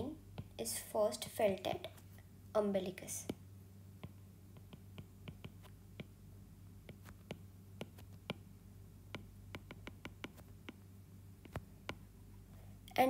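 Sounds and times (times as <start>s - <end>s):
low steady hum: 0.0s - 13.0s
stylus tapping on tablet: 3.2s - 6.2s, 6.8s - 12.1s.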